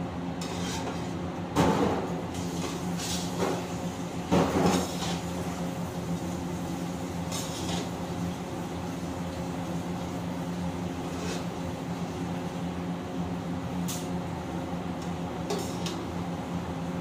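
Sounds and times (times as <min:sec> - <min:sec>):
metal ladle scraping in wok: 0:00.4 - 0:01.1.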